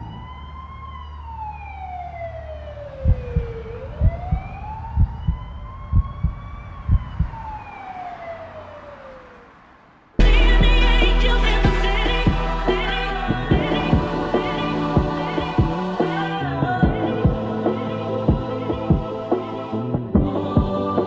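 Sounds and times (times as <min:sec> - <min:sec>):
wailing siren: 0:00.0 - 0:21.0
deep thumps: 0:03.1 - 0:07.4, 0:10.2 - 0:20.8
low rumble: 0:10.2 - 0:21.0.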